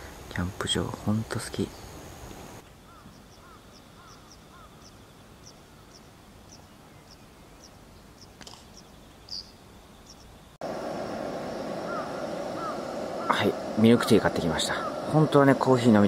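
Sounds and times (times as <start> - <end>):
small birds chirping: 0.0 - 10.6, 11.4 - 16.0
lower arching bird calls: 1.6 - 16.0.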